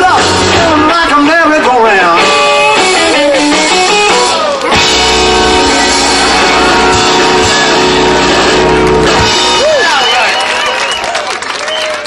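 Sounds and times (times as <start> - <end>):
rock band chord ringing: 0.1 - 9.8
drum hits: 4.7 - 9.8.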